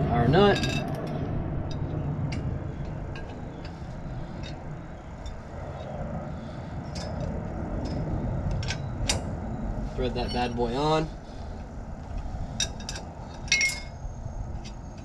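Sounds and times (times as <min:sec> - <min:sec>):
low background rumble: 0:00.0 - 0:15.0.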